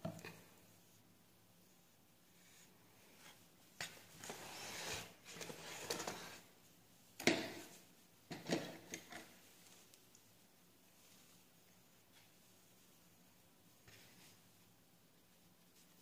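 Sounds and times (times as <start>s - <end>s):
rustling: 0.0s - 16.0s.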